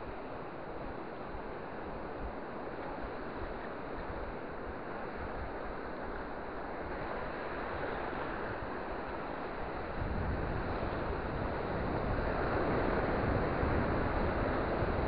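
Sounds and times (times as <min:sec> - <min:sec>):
wind buffeting microphone: 0:07.8 - 0:15.0.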